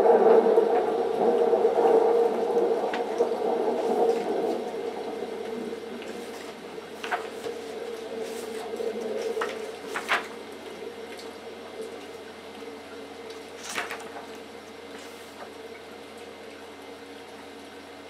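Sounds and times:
steady multi-pitched hum: 0.0 - 18.0
book pages turning: 6.1 - 10.4, 13.6 - 15.5.

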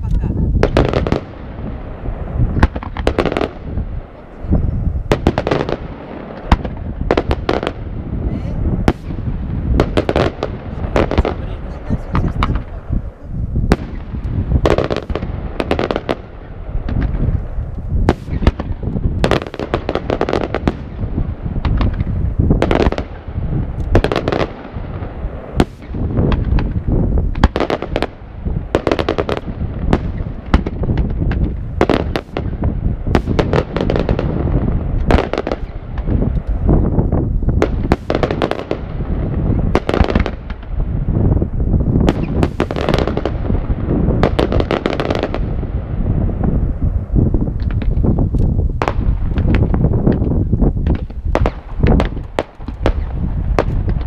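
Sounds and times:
firework shells bursting: 0.0 - 8.0, 8.6 - 12.9, 13.6 - 40.9, 42.0 - 46.0
low rumble: 0.0 - 27.4.

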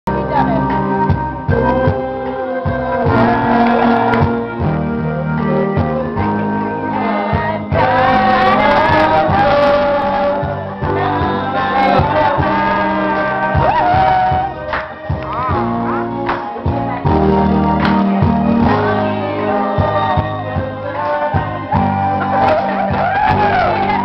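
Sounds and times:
karaoke backing track: 0.1 - 24.0
person singing into a microphone: 1.5 - 4.8, 5.4 - 17.5, 18.4 - 24.0.

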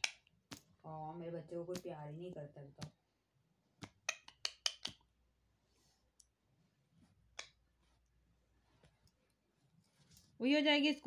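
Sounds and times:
beak pecking plastic toy: 3.8 - 5.1.

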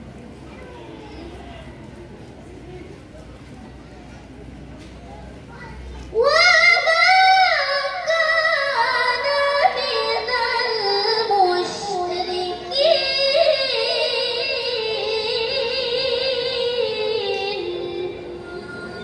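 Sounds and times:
woman reciting through microphone: 6.1 - 19.0.

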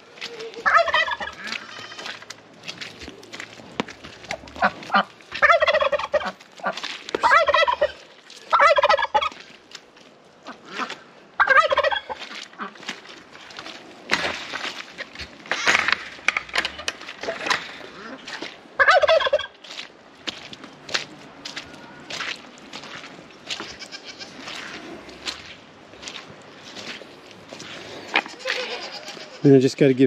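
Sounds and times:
turkey gobbling: 0.2 - 1.8, 4.2 - 9.4, 10.4 - 12.8, 16.6 - 19.6.

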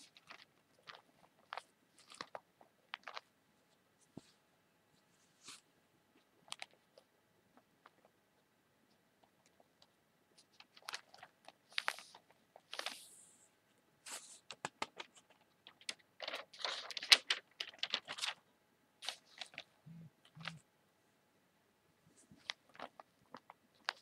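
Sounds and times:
paper crinkling: 0.0 - 3.3, 10.4 - 13.1, 14.1 - 18.4, 19.0 - 19.7, 22.3 - 24.0
paper sliding rustles: 11.7 - 13.2, 19.0 - 19.6
newspaper taps and crackles: 14.5 - 18.4.

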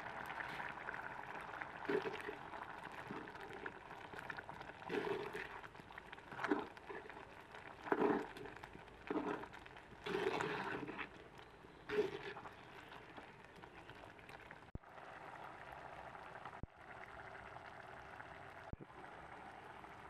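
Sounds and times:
curry bubbling in pot: 0.0 - 20.0
wooden spoon stirring thick curry: 1.8 - 14.1.

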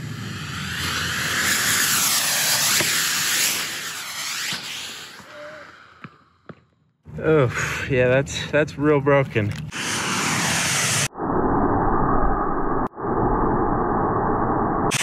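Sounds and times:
rocket motors hissing: 0.0 - 6.0, 9.5 - 11.1.

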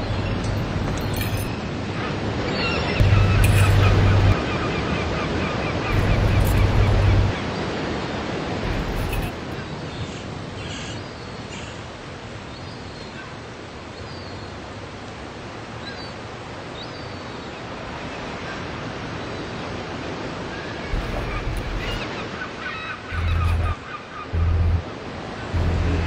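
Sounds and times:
water: 0.0 - 26.0
wind: 0.0 - 26.0
faint bird chirps: 23.1 - 24.8.

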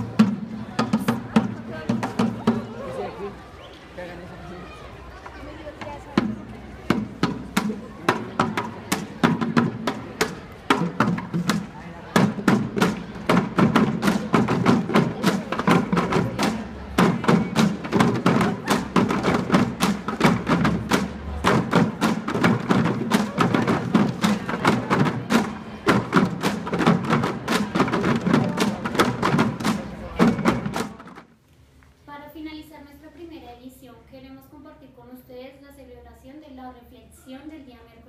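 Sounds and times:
marching drum band playing: 0.0 - 2.8, 5.8 - 31.2.

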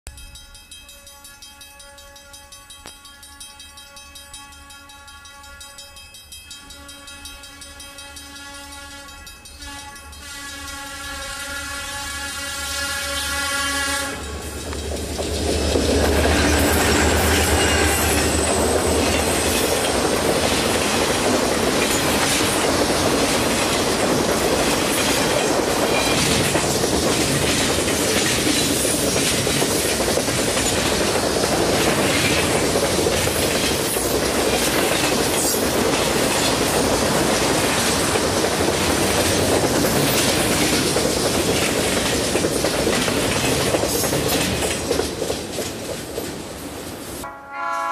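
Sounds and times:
diesel locomotive engine droning: 0.1 - 47.9
train wheels clacking over rail joints: 14.1 - 47.0.

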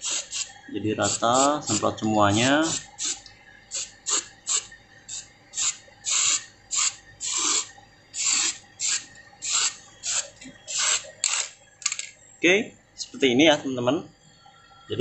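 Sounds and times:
spray can hissing squirts: 0.0 - 2.0, 2.6 - 11.6.

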